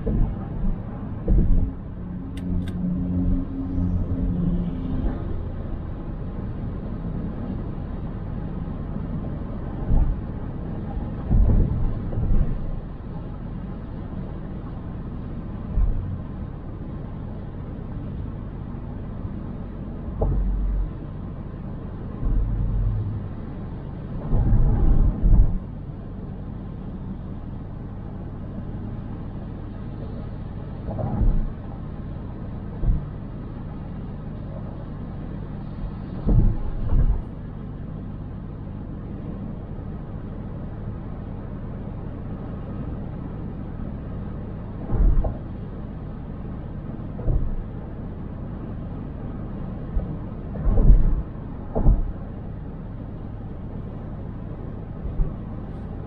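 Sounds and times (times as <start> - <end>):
car thumping over bumps: 0.0 - 1.8, 11.2 - 12.8, 20.1 - 21.0, 23.4 - 25.8, 30.8 - 31.6, 32.7 - 33.2, 35.6 - 37.4, 44.6 - 45.9, 46.9 - 48.1, 49.6 - 56.0
car road rumble: 0.0 - 56.0.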